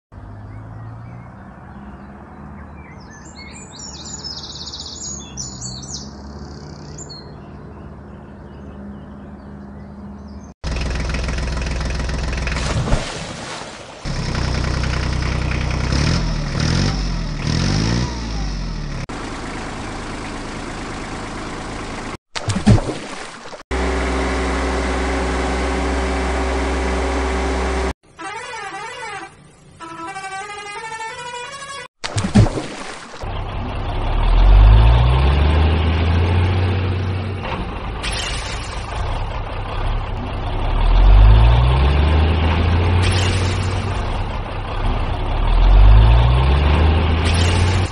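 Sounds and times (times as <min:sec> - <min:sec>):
birds chirping: 0:00.2 - 0:10.6
engine revving: 0:10.6 - 0:13.2, 0:14.0 - 0:22.2, 0:23.7 - 0:28.0, 0:33.2 - 0:47.9.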